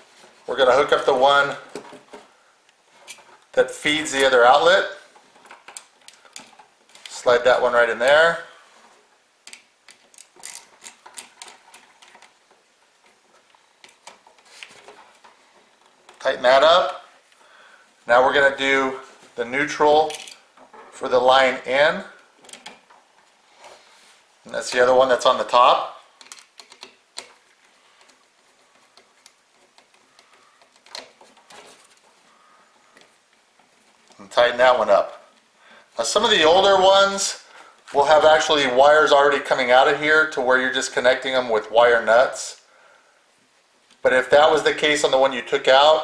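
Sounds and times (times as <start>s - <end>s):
screwdriver clicking and scraping: 9.5s - 12.4s.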